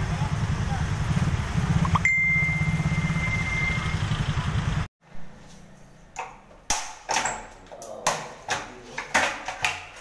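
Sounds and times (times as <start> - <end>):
vehicle engine running: 0.0 - 4.9
thin high ringing tone: 1.9 - 4.1.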